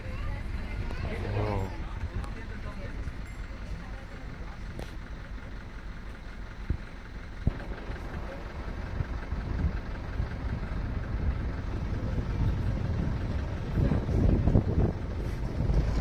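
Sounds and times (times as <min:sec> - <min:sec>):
vehicle engine idling: 0:00.0 - 0:16.0.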